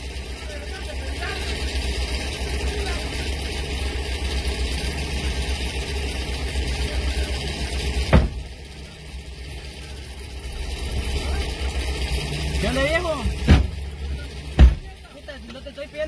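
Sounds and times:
vehicle engines idling: 0:00.0 - 0:16.0
sharp knock: 0:08.1 - 0:08.4, 0:13.4 - 0:13.8.

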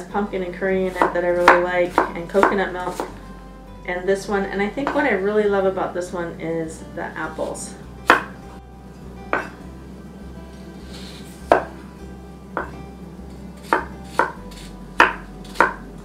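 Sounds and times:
knife chopping on wooden board: 0:00.9 - 0:03.1, 0:08.0 - 0:08.4, 0:09.3 - 0:09.6, 0:11.0 - 0:11.8, 0:12.6 - 0:12.8, 0:13.6 - 0:15.9.

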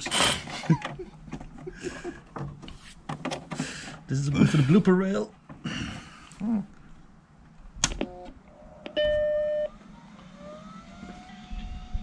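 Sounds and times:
rising whine: 0:08.6 - 0:12.0.

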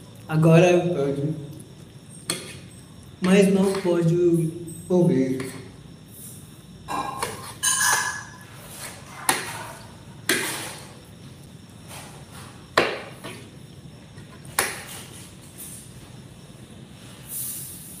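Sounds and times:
cutlery taps and clinks: 0:06.9 - 0:08.4.

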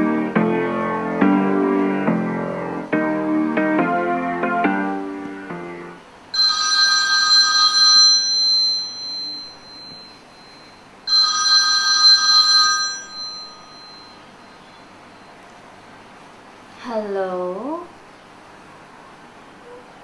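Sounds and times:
mobile phone ringing: 0:06.4 - 0:15.4.

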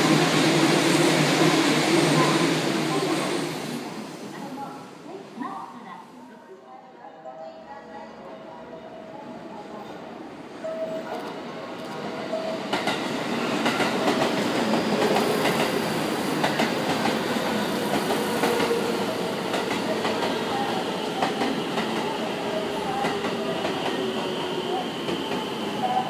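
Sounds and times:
electric train running: 0:11.2 - 0:26.0.

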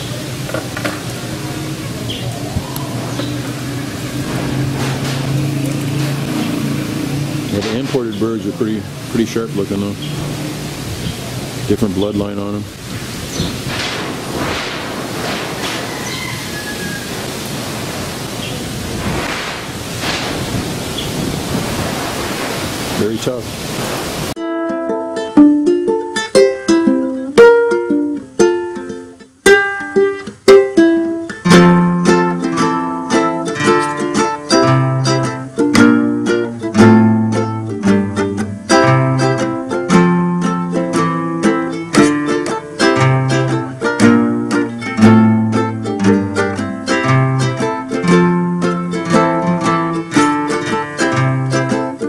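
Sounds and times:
plucked string instrumental music: 0:00.0 - 0:21.6, 0:24.4 - 0:52.0.

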